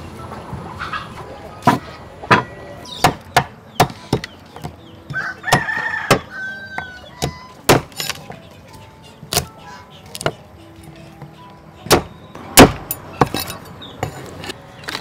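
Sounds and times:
knife chopping on wooden block: 1.7s - 8.3s, 9.3s - 10.4s, 11.2s - 14.2s
rooster crowing: 5.1s - 7.6s.

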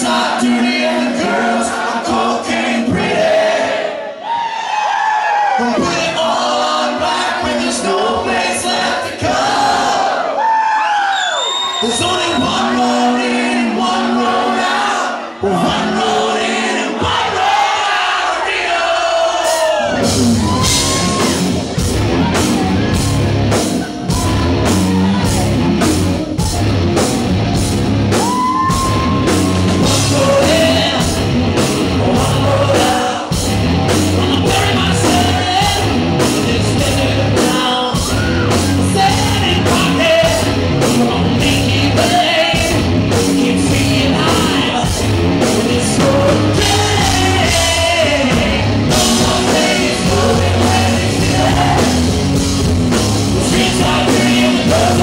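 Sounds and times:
man singing: 0.0s - 3.2s, 5.6s - 9.4s, 11.8s - 17.2s, 28.7s - 52.2s, 53.4s - 55.0s
drum kit beat: 19.4s - 55.0s
bass guitar: 19.8s - 55.0s
electric guitars: 19.9s - 55.0s.

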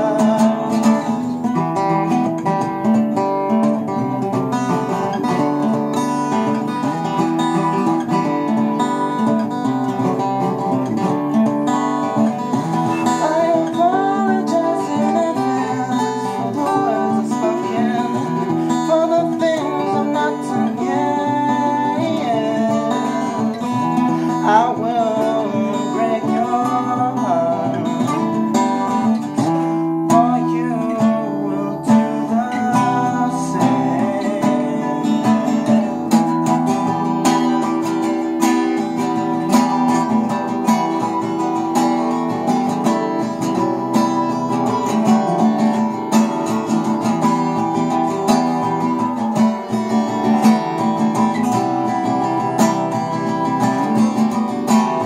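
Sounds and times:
man singing: 0.0s - 8.9s, 9.6s - 55.0s
acoustic guitar picking lead lines: 0.0s - 55.0s
acoustic guitar strumming chords: 0.0s - 55.0s.

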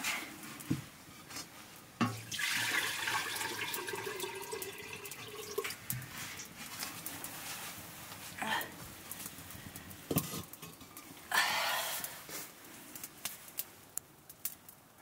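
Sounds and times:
water pouring into metal pot: 2.1s - 6.5s.

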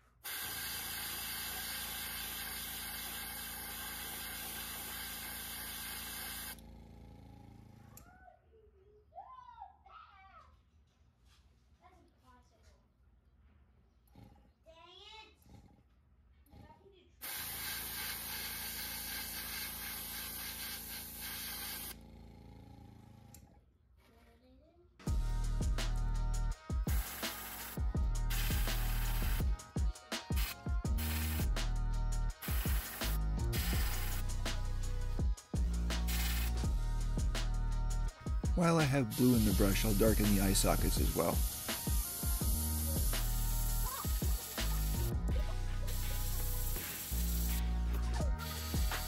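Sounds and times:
airbrush spraying hiss: 0.0s - 6.6s, 17.2s - 21.9s, 26.9s - 29.5s, 30.2s - 49.0s.

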